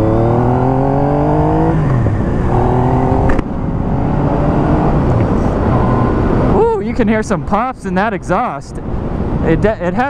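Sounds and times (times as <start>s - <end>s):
motorcycle engine revving: 0.0s - 6.5s
wind noise: 0.0s - 10.0s.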